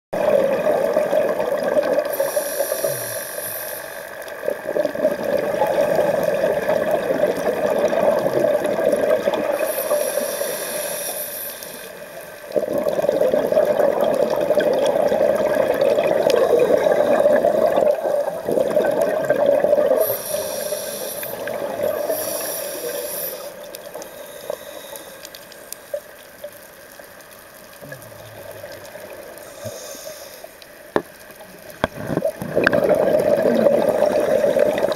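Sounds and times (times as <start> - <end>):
exhaled bubbles gurgling underwater: 0.2 - 34.9
regulator hissing inhalations: 2.1 - 4.2, 9.6 - 12.2, 20.0 - 26.0, 29.4 - 30.6.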